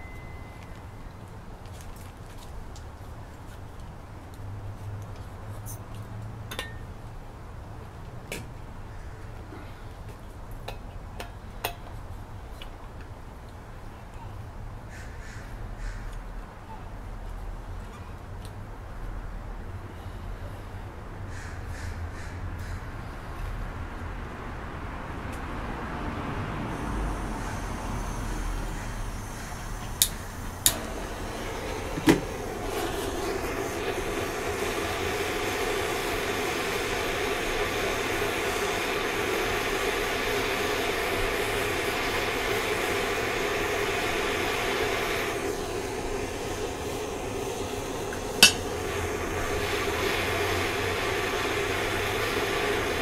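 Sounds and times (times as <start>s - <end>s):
torch flame rushing: 26.5s - 53.0s
gas hissing: 26.7s - 53.0s
torch igniter clicks: 27.4s - 53.0s.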